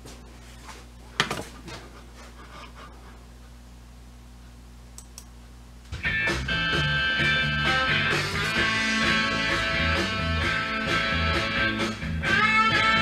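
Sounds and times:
amplifier hum: 3.0 - 13.0
music through speakers: 6.0 - 13.0.

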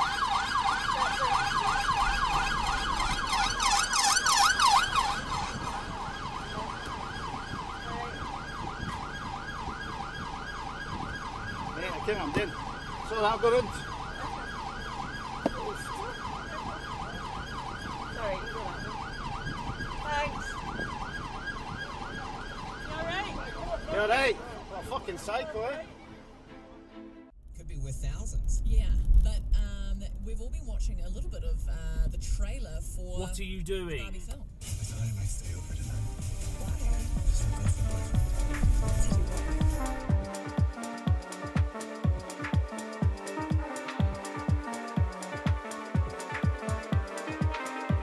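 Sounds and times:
police siren yelping: 0.0 - 26.0, 36.4 - 48.0.

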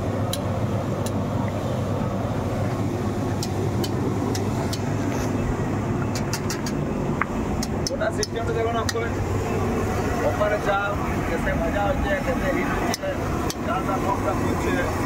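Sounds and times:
roaster machine humming: 6.6 - 15.0.

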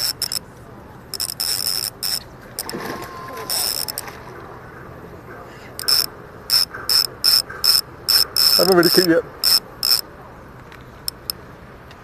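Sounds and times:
spinning reel buzzing: 1.1 - 2.7, 5.8 - 10.0.

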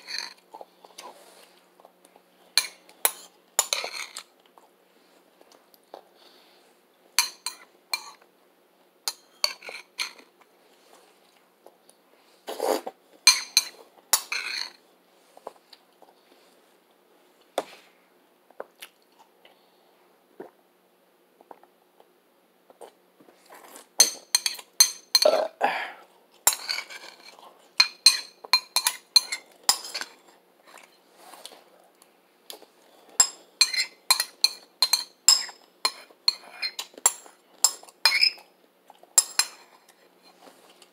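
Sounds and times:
spoon clinking on ceramic bowl: 27.8 - 30.0, 33.2 - 38.4.

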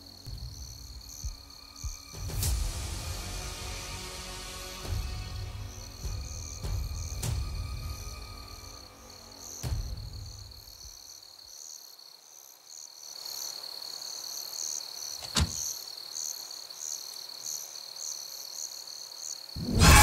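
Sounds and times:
low background music: 0.0 - 10.9
night insects chirping: 0.0 - 20.0.

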